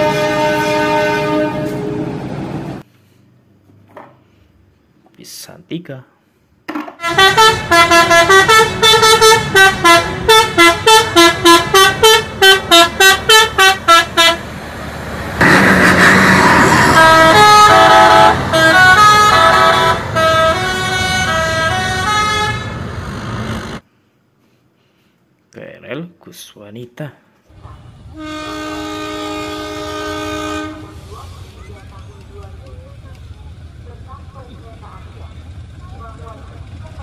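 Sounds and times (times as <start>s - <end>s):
musical air horn: 0.0s - 2.0s, 7.0s - 14.4s, 15.4s - 22.8s, 28.2s - 31.0s
burst of noise: 15.4s - 17.4s.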